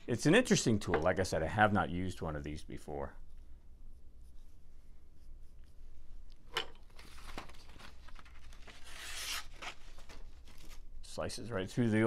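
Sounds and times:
knife slicing paper: 8.6 - 9.8.

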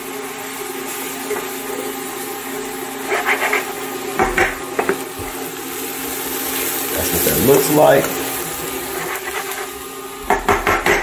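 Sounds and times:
spoon scraping frying pan: 3.1 - 5.0, 8.8 - 9.8.

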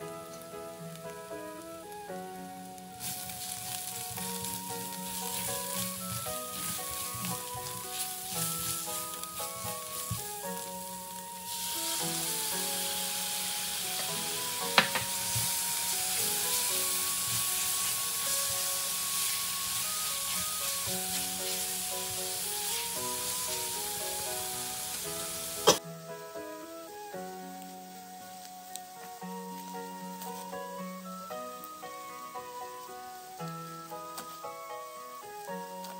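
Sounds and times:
background music: 0.0 - 35.9
masala sizzling in a frying pan: 0.0 - 35.9
spatula stirring in a pan: 3.0 - 25.8.

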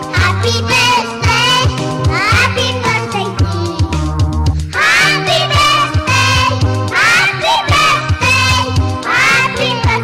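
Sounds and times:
upbeat background music: 0.0 - 10.0.

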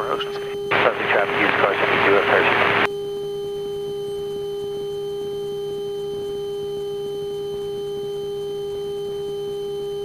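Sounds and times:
electronic hum: 0.0 - 10.0.

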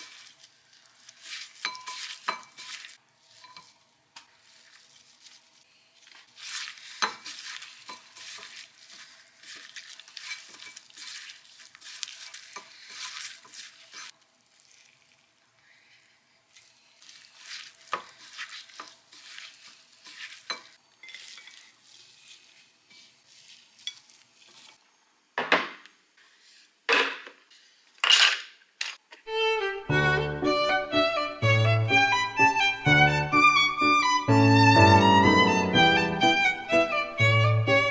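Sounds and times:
food tossed in a bowl: 0.0 - 15.4, 16.5 - 24.8.

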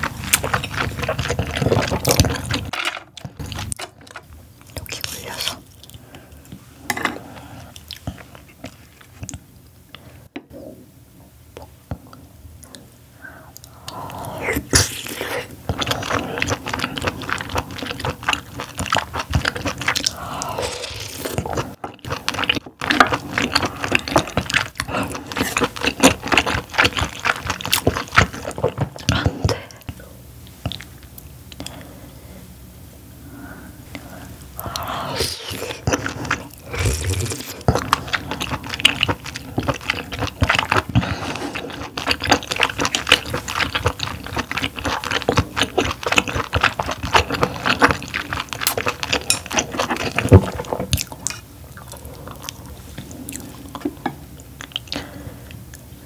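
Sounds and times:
close-up wet chewing: 0.0 - 4.0, 15.6 - 30.0, 33.9 - 55.9.

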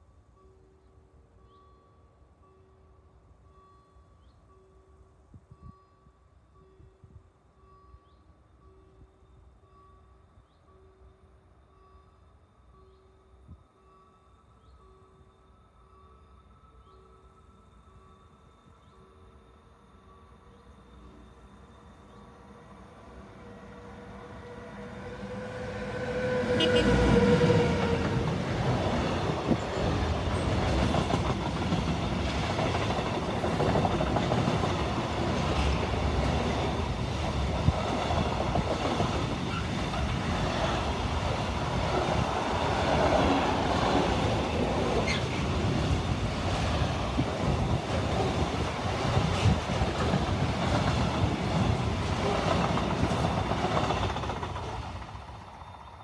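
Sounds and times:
locomotive whine: 14.3 - 56.0
sharp clicks from train wheels: 26.6 - 56.0.

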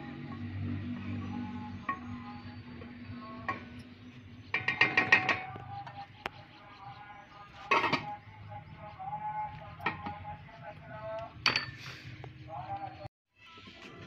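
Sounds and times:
metal lid clattering: 4.5 - 5.6, 7.7 - 8.2.

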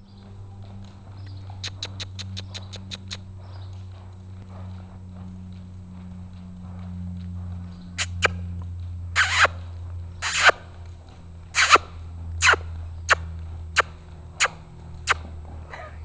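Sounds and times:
horse hooves trotting: 0.0 - 16.0
steady low hum: 0.0 - 16.0.

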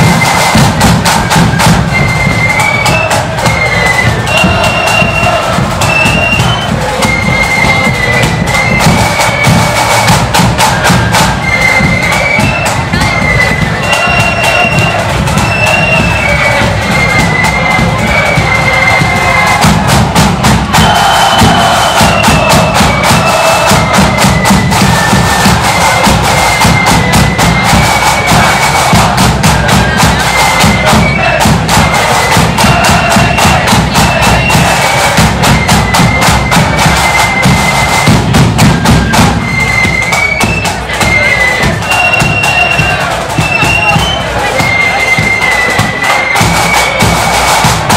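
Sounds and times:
shrill flute melody: 0.0 - 47.9
snare and bass drums: 0.0 - 47.9.

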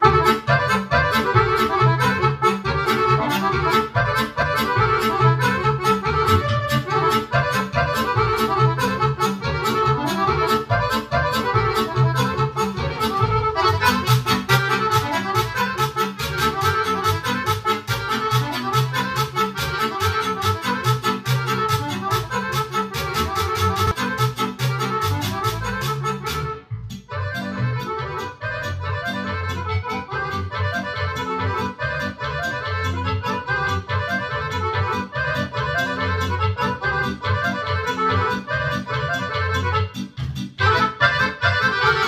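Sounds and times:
accordions playing dance tune: 0.0 - 42.0
synthesizer keyboard: 0.0 - 42.0.

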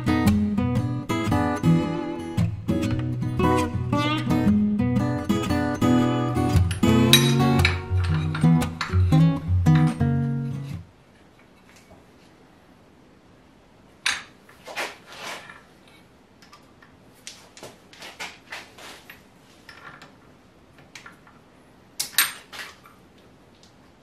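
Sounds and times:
metal clamp parts clanking: 6.7 - 9.0, 22.0 - 22.9.

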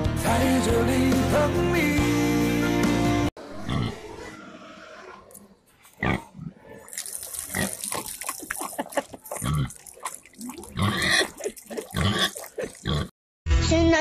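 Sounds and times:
pig grunting: 3.4 - 13.1
water splashing: 6.8 - 13.1.

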